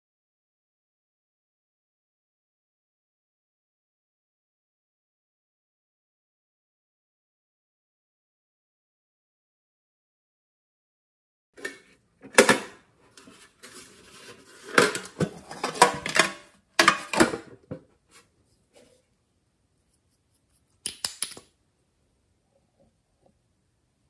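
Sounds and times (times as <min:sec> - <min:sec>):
plastic container clattering: 0:11.6 - 0:17.9.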